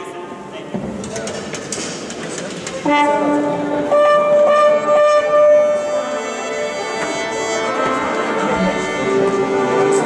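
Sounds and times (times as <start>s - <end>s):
orchestral bowed strings: 2.8s - 10.0s
woodwinds holding long notes: 2.8s - 10.0s.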